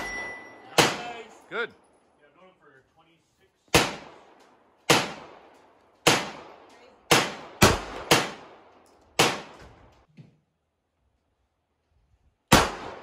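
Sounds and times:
pistol shots with echo: 0:00.0 - 0:01.4, 0:03.7 - 0:09.6, 0:12.5 - 0:13.0.

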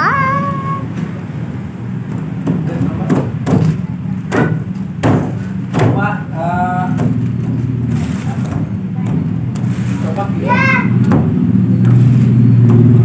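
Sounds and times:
short knocks and thuds: 0:02.1 - 0:06.2, 0:11.0 - 0:11.4.

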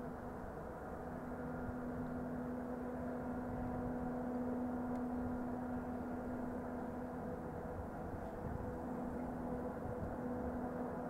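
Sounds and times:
diesel locomotive running: 0:00.0 - 0:11.0.

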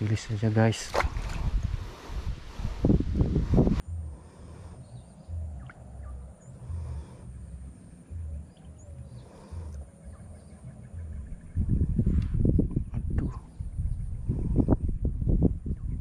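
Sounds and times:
low repeating throb: 0:02.9 - 0:12.9.

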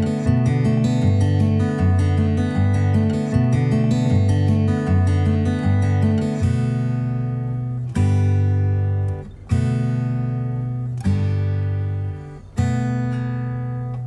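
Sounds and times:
acoustic guitar strumming chords: 0:00.0 - 0:14.0.

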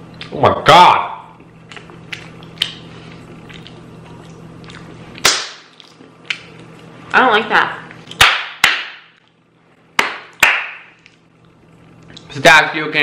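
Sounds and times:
loud sharp crack: 0:05.2 - 0:05.8, 0:08.2 - 0:09.2.

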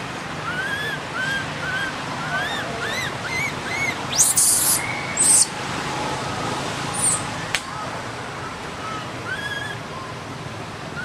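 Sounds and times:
baby monkey squealing: 0:00.4 - 0:05.5, 0:06.9 - 0:07.3, 0:09.3 - 0:09.8
baby monkey screaming: 0:00.4 - 0:05.6, 0:06.9 - 0:07.3, 0:08.9 - 0:09.8.

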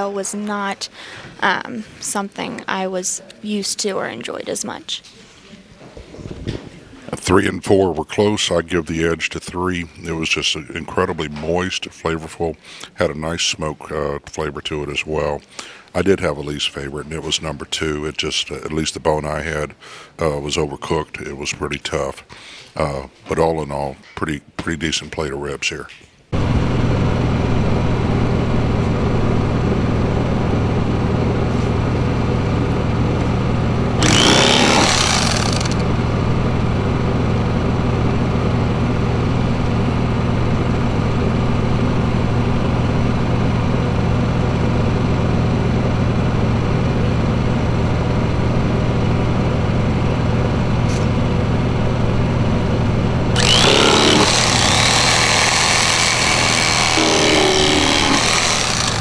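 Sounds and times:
small engine droning: 0:34.0 - 0:35.9, 0:53.4 - 0:59.0.

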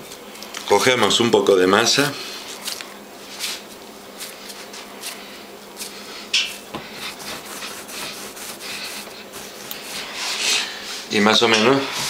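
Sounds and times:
hands rubbing dough on wood: 0:02.2 - 0:11.1.

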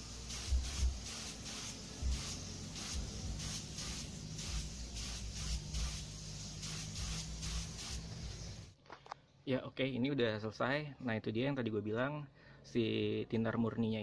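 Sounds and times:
spray gun hissing in bursts: 0:00.0 - 0:08.7.

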